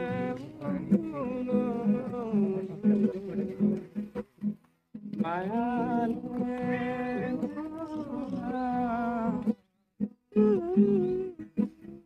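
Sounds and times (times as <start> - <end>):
man singing: 0.0 - 4.0, 5.1 - 9.6
acoustic guitar: 0.0 - 12.0.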